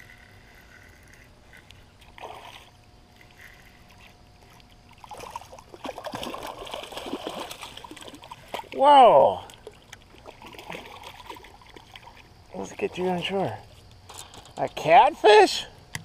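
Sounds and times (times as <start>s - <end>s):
fish thrashing and splashing: 2.0s - 12.4s.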